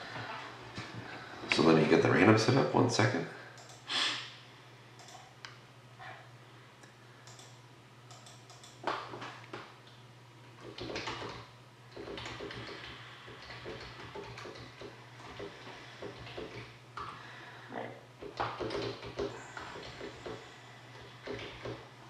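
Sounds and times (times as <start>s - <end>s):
low steady hum: 0.0s - 22.0s
keyboard and mouse clicks: 3.6s - 3.8s, 5.0s - 5.6s, 7.2s - 10.0s, 10.6s - 17.2s, 18.2s - 20.4s.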